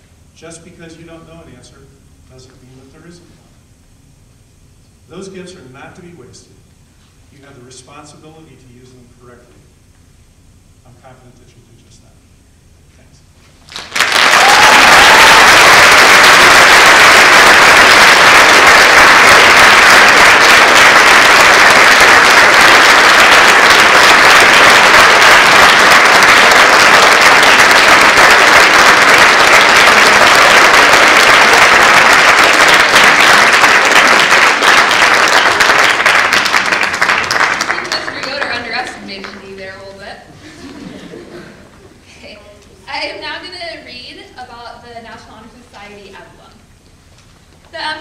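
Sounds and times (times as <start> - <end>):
audience applauding: 13.7 - 39.4.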